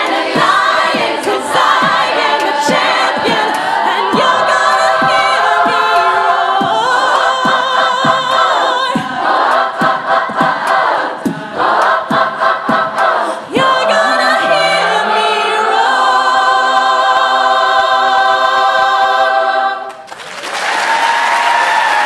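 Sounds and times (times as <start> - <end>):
girls' choir singing a cappella: 0.0 - 20.1
audience applause: 19.9 - 22.0.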